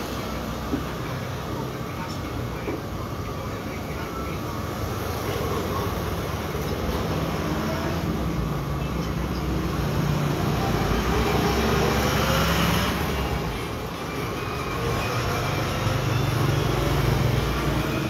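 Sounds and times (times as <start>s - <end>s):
vehicle engine passing by: 9.7s - 13.5s.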